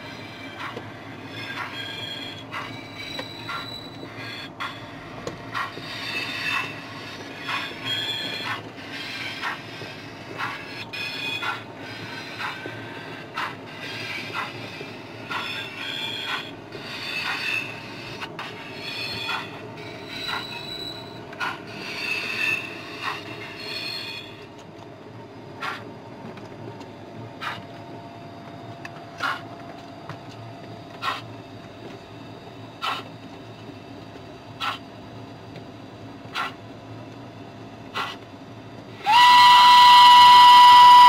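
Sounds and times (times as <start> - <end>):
wheels squealing: 1.3 - 4.8, 7.4 - 9.6, 18.7 - 24.4.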